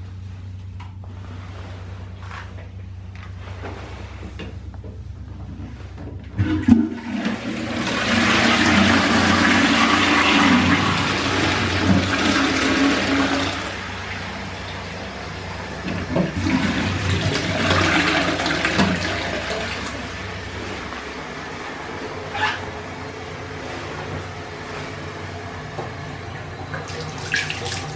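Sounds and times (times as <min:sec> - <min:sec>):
water rushing down urinal: 0:06.4 - 0:21.2, 0:26.6 - 0:27.9.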